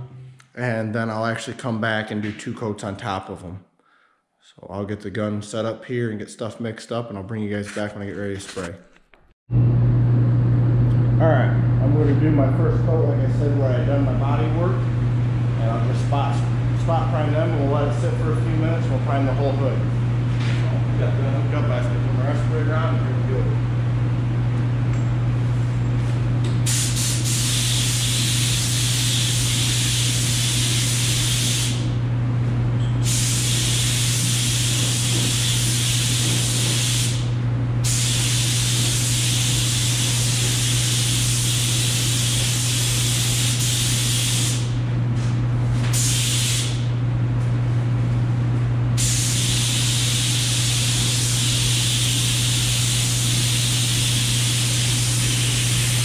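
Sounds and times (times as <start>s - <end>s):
steady low hum: 4.4s - 56.0s
spray gun hissing: 26.7s - 31.9s, 33.0s - 37.3s, 37.9s - 44.7s, 45.9s - 46.8s, 49.0s - 56.0s.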